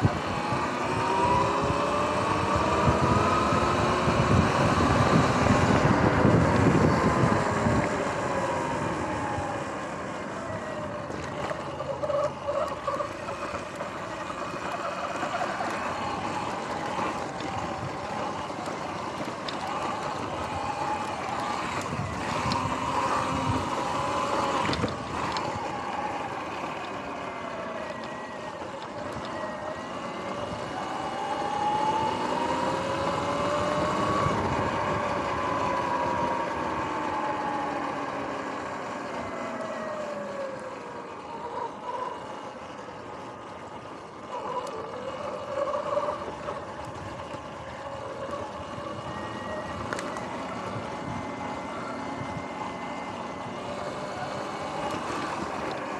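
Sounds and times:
tyre and wind noise: 0.0s - 38.0s
electric motor whine: 0.0s - 55.9s.

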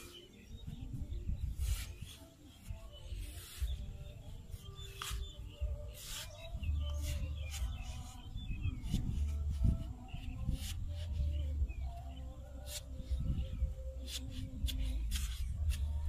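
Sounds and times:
digging tool chopping wet clay: 14.0s - 15.9s.

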